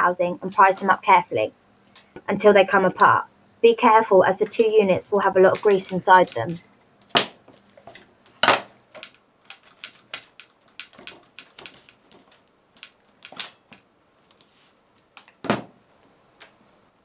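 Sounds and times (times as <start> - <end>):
screwdrivers set down on table: 15.4 - 15.7.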